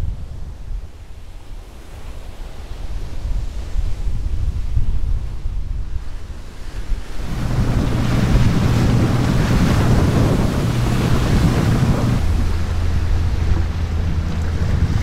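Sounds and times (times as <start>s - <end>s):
wind on microphone: 0.0s - 15.0s
boat engine hum: 6.2s - 15.0s
water rushing: 6.8s - 15.0s.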